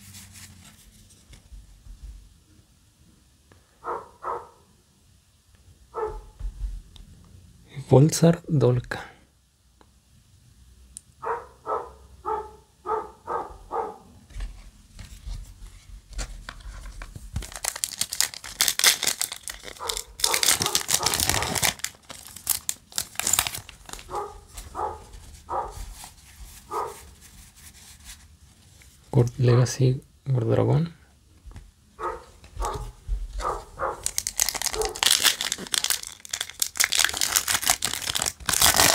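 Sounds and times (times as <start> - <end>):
foil pack crinkling: 16.3 - 27.3, 33.4 - 38.9.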